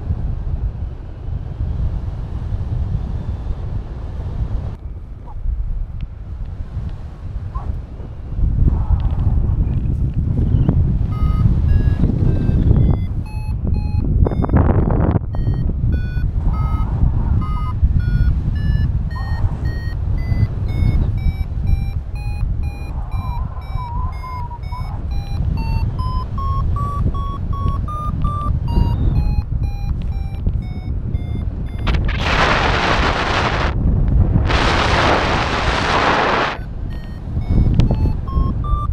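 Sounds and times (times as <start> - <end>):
wind noise on microphone: 0.0 - 38.9
variometer rising beeps: 11.0 - 33.8, 34.5 - 38.9.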